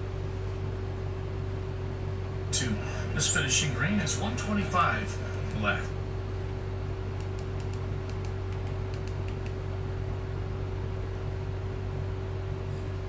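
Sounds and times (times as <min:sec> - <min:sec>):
electrical hum: 0:00.0 - 0:13.0
low room noise: 0:00.0 - 0:13.0
faint clicks: 0:07.2 - 0:09.6.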